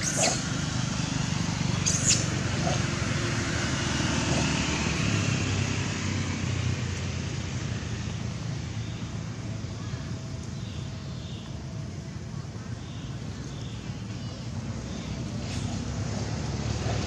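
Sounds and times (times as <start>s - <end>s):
monkey squealing: 0.0s - 0.6s, 1.8s - 2.8s
road traffic rumble: 0.0s - 17.0s.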